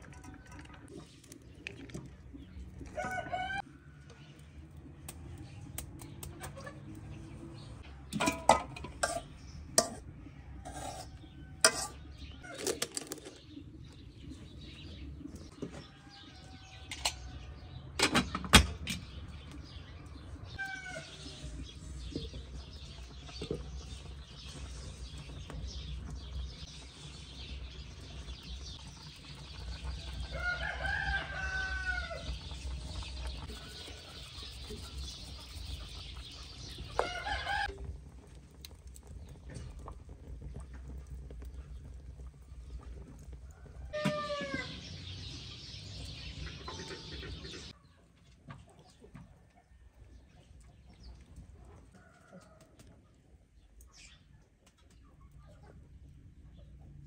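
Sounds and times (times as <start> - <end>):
chickens calling: 26.1 - 39.2, 40.8 - 48.0.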